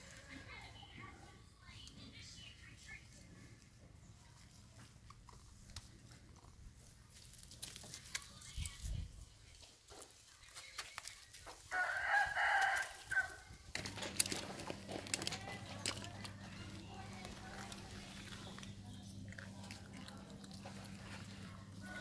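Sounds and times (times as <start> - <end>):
faint clicks and rustles: 3.4 - 11.7, 13.6 - 22.0
rooster crowing: 11.7 - 13.4, 21.8 - 22.0.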